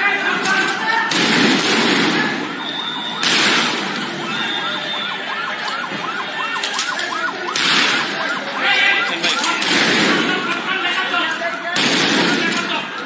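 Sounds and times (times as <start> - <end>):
siren yelping: 1.8 - 11.6
loud bang: 3.2 - 4.0.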